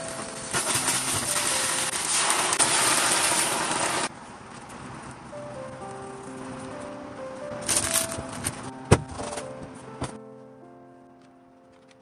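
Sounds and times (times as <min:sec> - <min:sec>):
background music: 0:00.0 - 0:04.1, 0:05.2 - 0:12.0.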